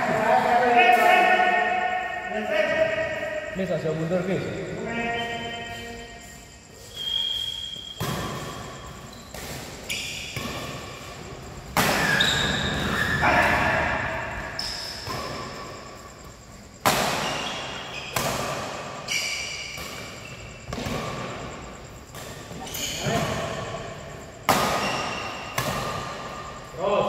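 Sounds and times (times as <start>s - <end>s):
short high squeaks: 4.9s - 11.1s, 11.9s - 13.4s, 19.0s - 20.7s
racket striking shuttlecock: 24.4s - 26.3s.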